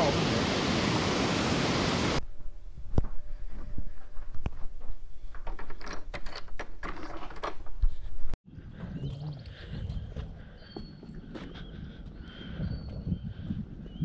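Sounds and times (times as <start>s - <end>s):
rustling and clattering: 2.3s - 8.4s.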